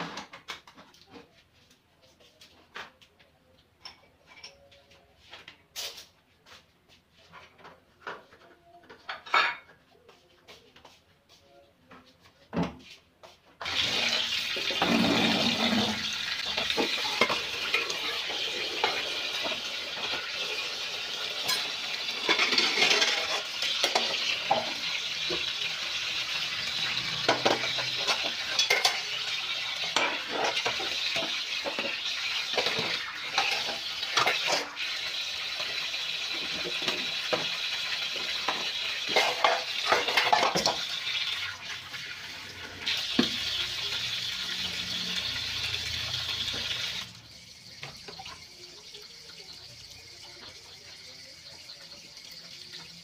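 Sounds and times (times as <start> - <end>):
plates and dishes clattering: 3.8 - 6.1, 7.2 - 9.9, 13.6 - 25.6, 26.9 - 34.8, 38.2 - 41.0
metal bowls and wok clanking: 13.6 - 41.3
tap water running: 13.6 - 53.0.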